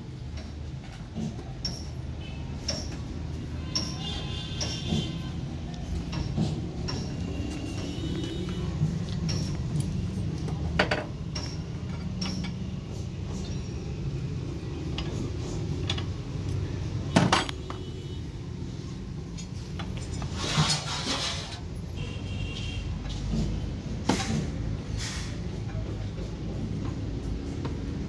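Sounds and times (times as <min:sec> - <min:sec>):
metal engine parts clinking: 0:00.2 - 0:17.8, 0:18.9 - 0:21.8.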